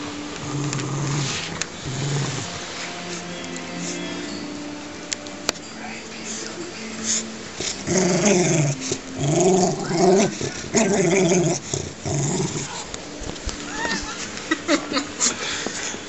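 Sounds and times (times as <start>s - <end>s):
dog growling in play: 0.4s - 3.2s, 7.6s - 13.4s.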